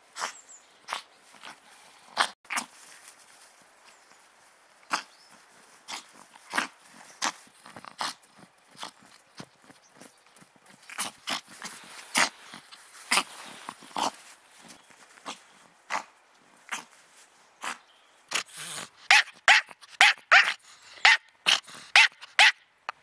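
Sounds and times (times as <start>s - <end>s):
small dog barking: 19.0s - 22.6s.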